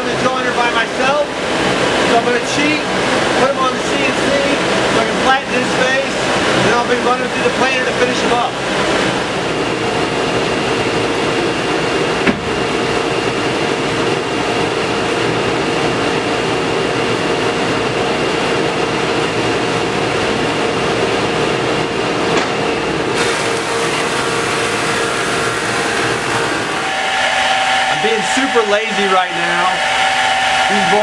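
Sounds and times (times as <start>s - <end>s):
thickness planer humming: 22.4s - 31.0s
planer cutting wood board: 23.2s - 31.0s.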